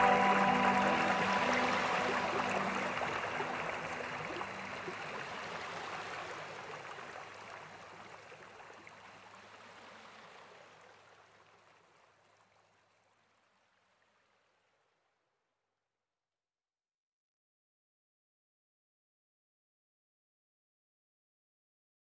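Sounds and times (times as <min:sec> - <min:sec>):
waterfall rushing: 0:00.0 - 0:06.9.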